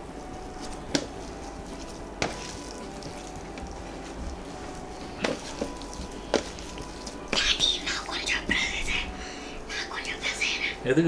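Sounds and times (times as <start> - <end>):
potatoes squishing: 0.0 - 7.6.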